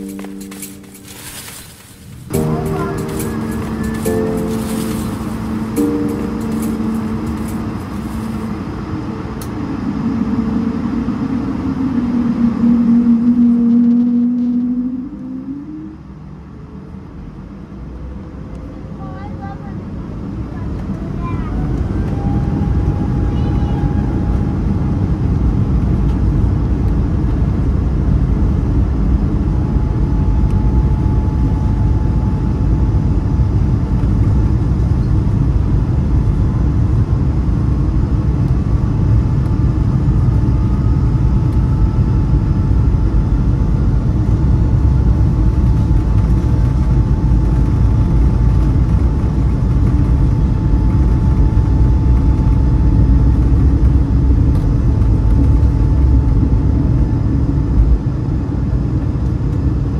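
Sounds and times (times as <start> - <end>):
faint rising tone: 0.0 - 16.9
jet engines rumbling and whining: 0.0 - 59.9.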